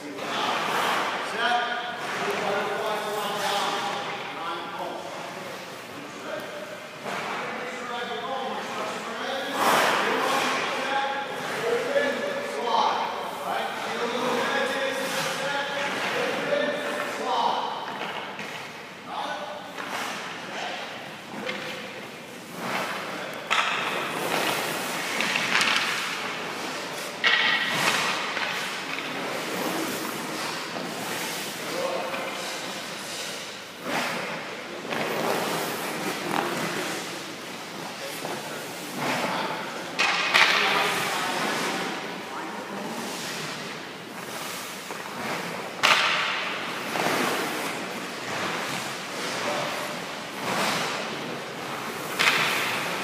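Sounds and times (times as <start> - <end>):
ice skate blades scraping ice: 23.9 - 39.2.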